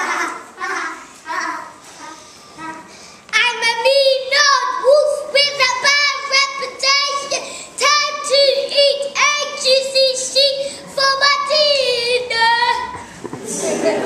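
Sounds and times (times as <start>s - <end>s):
child singing: 2.6s - 13.0s.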